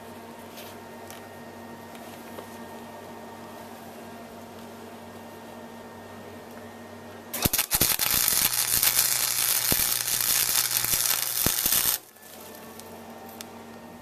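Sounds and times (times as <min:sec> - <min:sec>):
electric arc welding crackle: 0:07.3 - 0:12.9.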